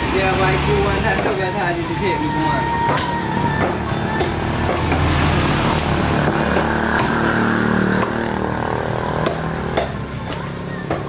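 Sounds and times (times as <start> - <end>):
knife striking chopping block: 9.2 - 10.0.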